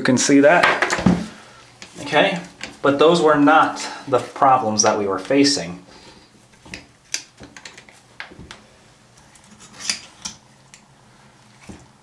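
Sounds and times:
pliers clicking and scraping on metal: 0:09.2 - 0:10.8.

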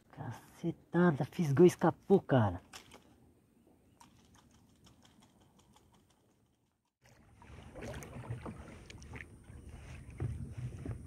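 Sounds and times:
fishing gear clicks and knocks: 0:02.6 - 0:03.2.

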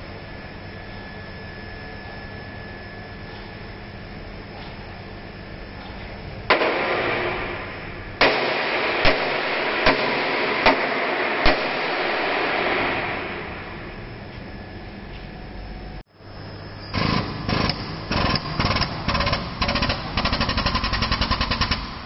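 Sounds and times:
hammer striking steel rail: 0:06.5 - 0:13.6.

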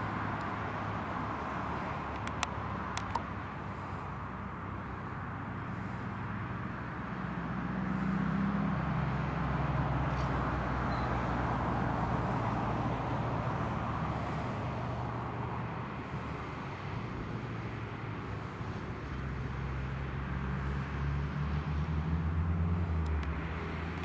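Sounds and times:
tractor diesel engine under load: 0:00.0 - 0:24.0.

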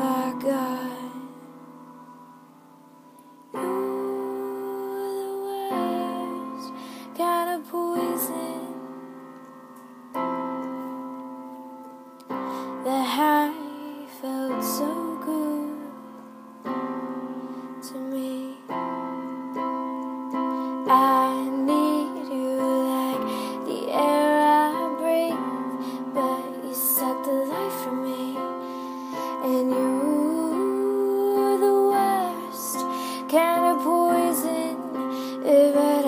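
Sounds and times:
woman singing wordless phrases: 0:00.0 - 0:01.5, 0:03.6 - 0:08.9, 0:12.8 - 0:16.1, 0:17.8 - 0:18.8, 0:20.8 - 0:28.6, 0:29.2 - 0:36.0
piano chords ringing: 0:00.0 - 0:36.0.

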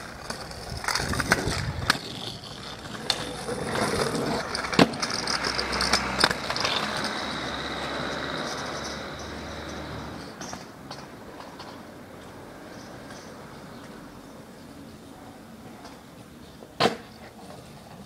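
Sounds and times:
scooter clacking on road: 0:00.0 - 0:11.9
scooter wheels rolling on tarmac: 0:00.0 - 0:18.0.

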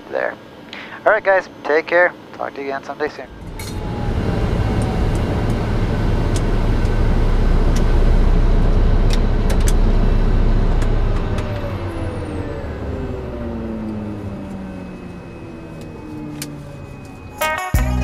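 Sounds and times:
turboprop engine spooling down: 0:03.1 - 0:17.4.

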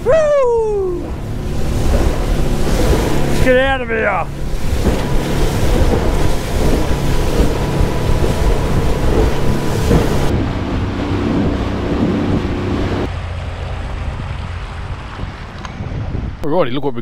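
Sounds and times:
wind rushing on microphone: 0:00.0 - 0:13.1, 0:14.8 - 0:17.0
outboard motor drone: 0:00.0 - 0:15.7
water spray off hull: 0:00.8 - 0:13.1.

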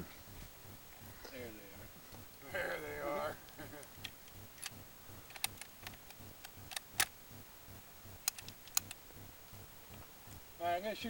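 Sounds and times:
rifle bolt metallic clicks: 0:05.3 - 0:07.2, 0:08.2 - 0:09.0.

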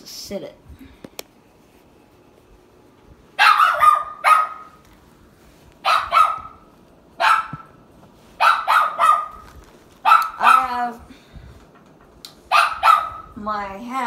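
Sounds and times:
dog barking: 0:03.4 - 0:04.8, 0:05.8 - 0:07.8, 0:08.4 - 0:09.4, 0:10.0 - 0:10.8, 0:12.5 - 0:13.4.

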